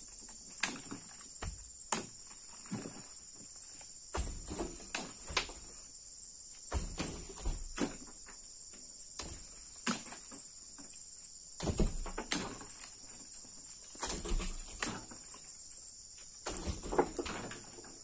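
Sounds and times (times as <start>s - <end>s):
insects chirring: 0.0s - 18.0s
knocks and thumps: 0.6s - 3.1s, 4.1s - 5.8s, 6.7s - 8.4s, 11.6s - 12.8s, 16.4s - 18.0s.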